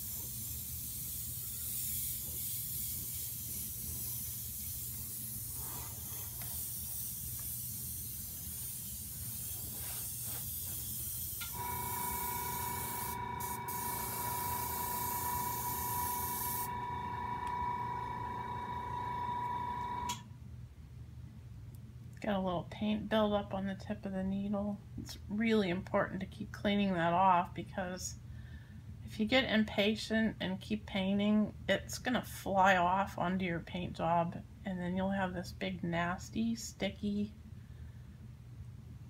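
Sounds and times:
airbrush air hiss: 0:00.0 - 0:20.1
steady pitched whine: 0:11.5 - 0:20.2.

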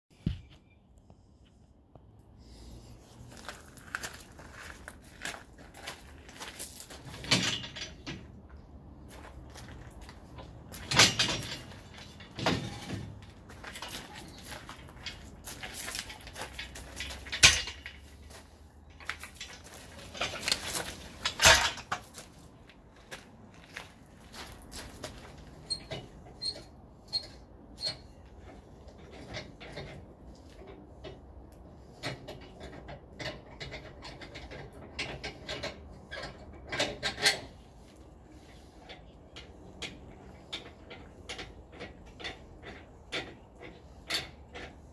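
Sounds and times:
metal clanking and rattling: 0:06.2 - 0:22.3, 0:24.9 - 0:44.9
metal clicks and scrapes: 0:09.8 - 0:22.2.

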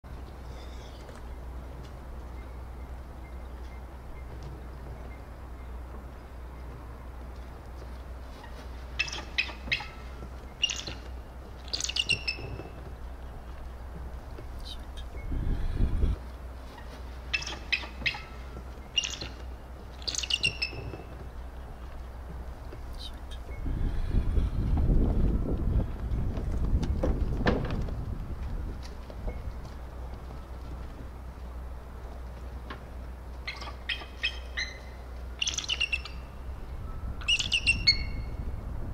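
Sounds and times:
low steady rumble: 0:00.1 - 0:38.9
eagle chirping calls: 0:09.0 - 0:11.0, 0:11.6 - 0:12.6, 0:17.3 - 0:19.4, 0:20.0 - 0:21.1, 0:33.4 - 0:38.4.

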